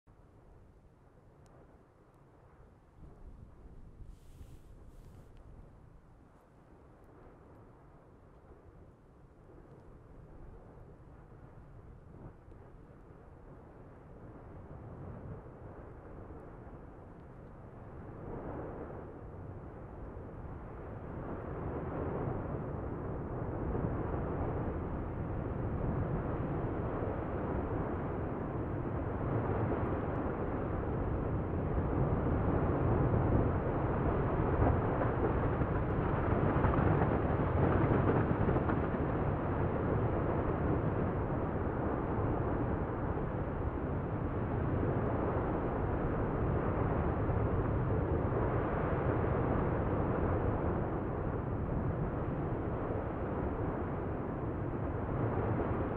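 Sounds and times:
lava fountain rushing rumble: 17.7 - 55.9.

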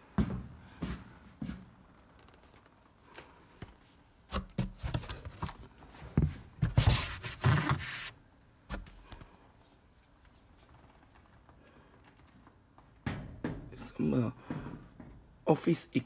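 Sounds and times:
cardboard rubbing and scraping: 6.6 - 8.2
small knocks: 12.7 - 15.3.

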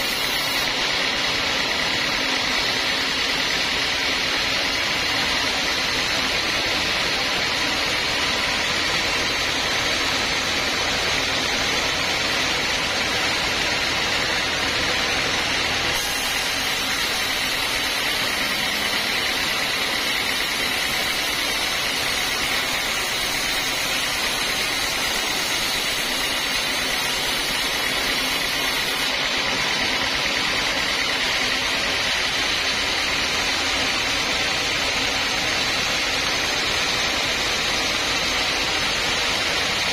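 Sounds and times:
higher hiss: 0.0 - 5.4, 15.0 - 29.6
band saw cutting wood: 0.0 - 39.9
machine running: 0.0 - 39.9.

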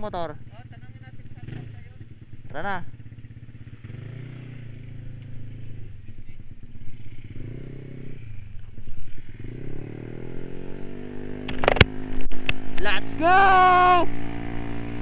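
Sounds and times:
scooter engine accelerating: 0.0 - 15.0.

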